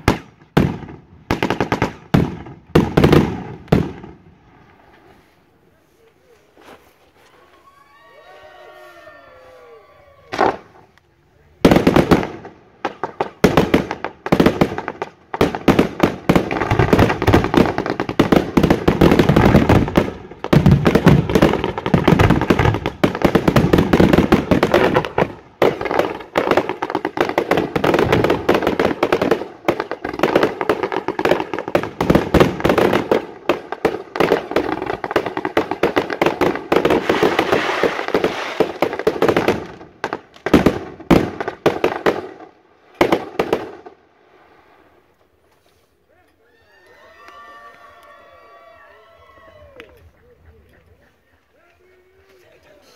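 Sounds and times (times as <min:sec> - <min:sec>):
aerial firework bursts: 0:36.0 - 0:39.8.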